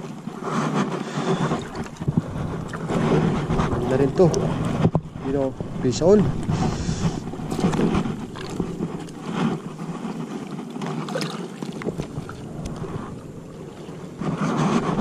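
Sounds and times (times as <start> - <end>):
water lapping: 0.0 - 15.0
wind buffeting microphone: 0.0 - 15.0.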